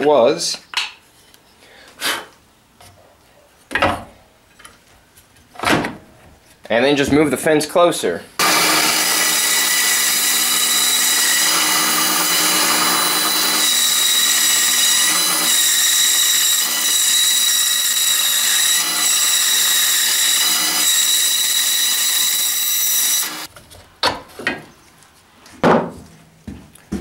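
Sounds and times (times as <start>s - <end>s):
band saw cutting wood: 8.4s - 23.5s.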